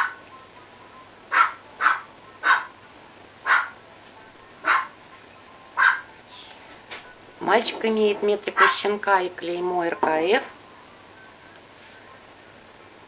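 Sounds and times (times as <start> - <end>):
puppy yapping: 1.3 - 2.7, 3.4 - 3.8, 4.6 - 5.0, 5.8 - 6.1.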